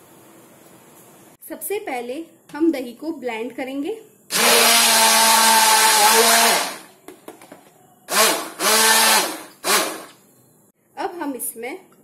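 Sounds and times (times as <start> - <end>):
hand blender motor hum: 4.3 - 6.9, 8.1 - 10.1.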